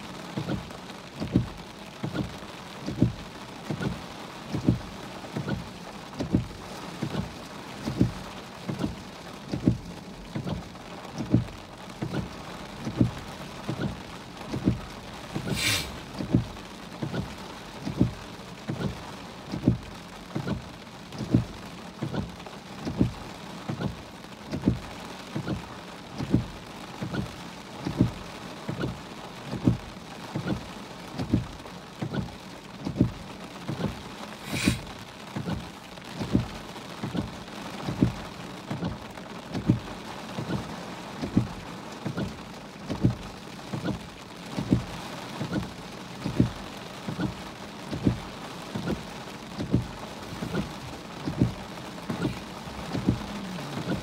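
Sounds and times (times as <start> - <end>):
heavy rain drumming on car: 0.0 - 54.0
windshield wipers thumping: 0.0 - 54.0
brief hiss: 15.4 - 16.0, 34.4 - 34.9.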